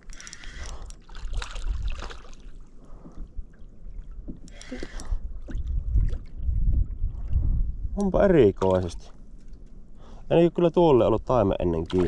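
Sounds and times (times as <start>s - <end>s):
wind rumble on microphone: 0.0s - 2.2s, 2.9s - 9.2s
water splashing around boat: 0.0s - 9.8s, 11.2s - 12.0s.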